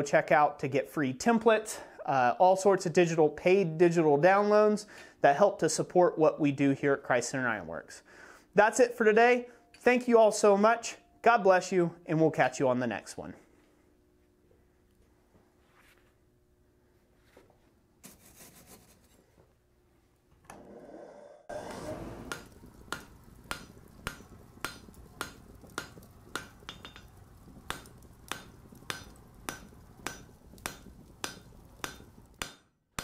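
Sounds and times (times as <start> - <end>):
hammer striking an anvil: 27.7 - 33.0.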